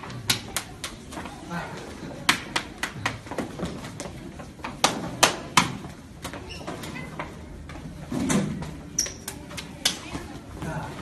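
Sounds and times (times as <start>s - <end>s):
hands slapping and clapping: 0.0s - 1.1s, 2.2s - 3.2s.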